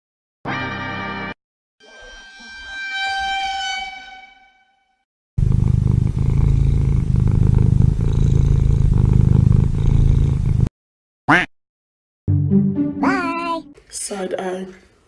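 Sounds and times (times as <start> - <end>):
cat purring: 5.4 - 10.7.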